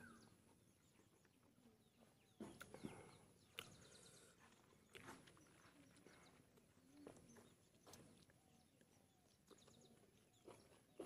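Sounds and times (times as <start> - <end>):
faint bird chirps: 0.0 - 11.0
chewing and mouth clicks: 3.4 - 11.0.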